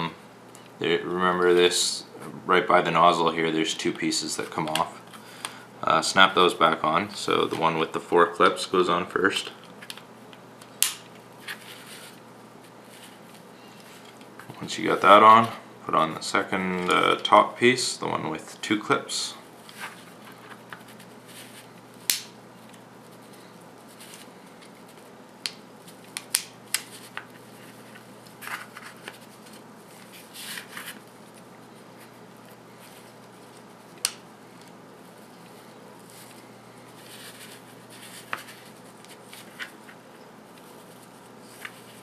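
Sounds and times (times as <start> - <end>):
plastic parts rubbing and rustling: 26.9 - 33.9, 35.0 - 42.0.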